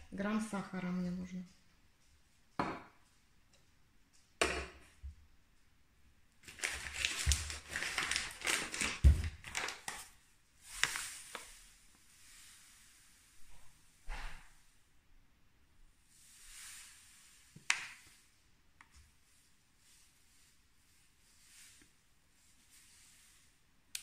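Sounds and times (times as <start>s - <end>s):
paper bag crinkling: 6.4s - 11.3s.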